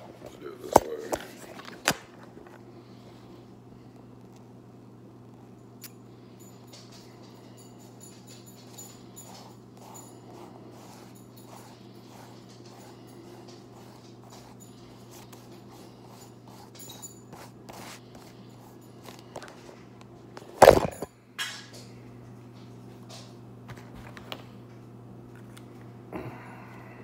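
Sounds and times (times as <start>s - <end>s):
steady low hum: 0.0s - 27.0s
notepad and phone handling rustles: 0.2s - 2.6s.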